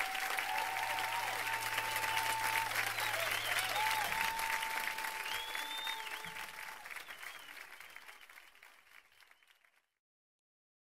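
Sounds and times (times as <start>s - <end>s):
audience applause: 0.0s - 9.9s
long whistles: 0.1s - 8.2s.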